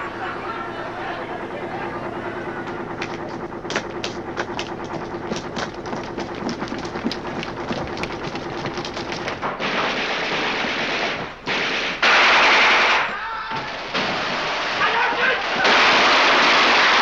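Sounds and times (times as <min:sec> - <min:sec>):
steady hum: 0:00.0 - 0:17.0
gunshots: 0:09.6 - 0:13.1, 0:15.3 - 0:17.0.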